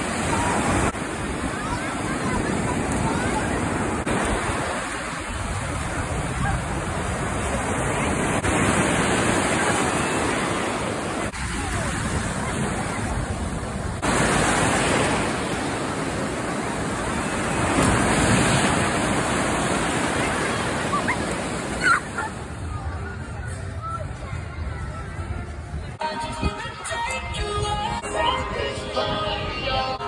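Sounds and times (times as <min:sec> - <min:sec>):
ocean surf breaking: 0:00.0 - 0:22.6.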